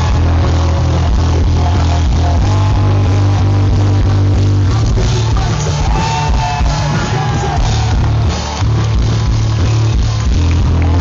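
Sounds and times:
person singing: 0.0 - 8.4
rock band playing live: 0.0 - 11.0
steady drum beat: 0.0 - 11.0.

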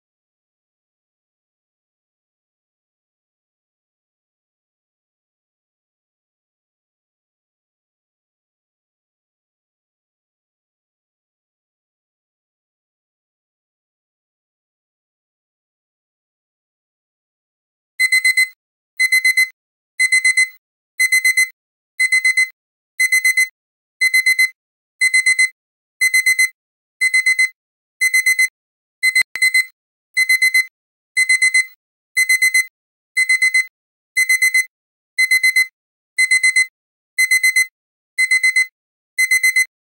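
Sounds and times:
alarm clock beeping: 18.0 - 39.7.

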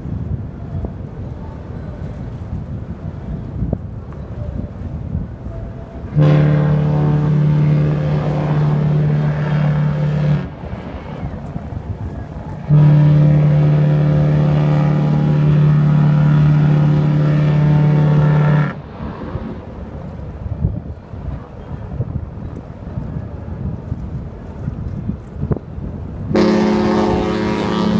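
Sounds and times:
water noise: 0.0 - 27.9
wind: 0.0 - 27.9
ship's horn blasts: 5.4 - 20.6, 26.1 - 27.9.

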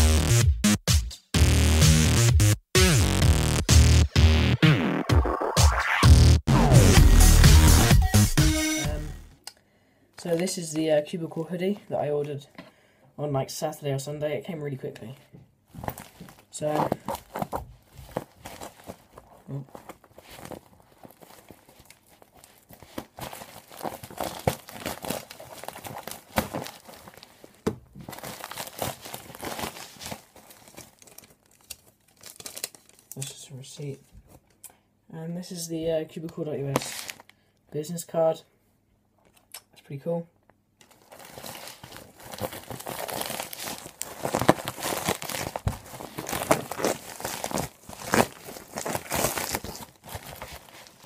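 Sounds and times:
plastic mailing bag crinkling: 15.7 - 33.3, 36.7 - 37.3, 40.8 - 51.0.

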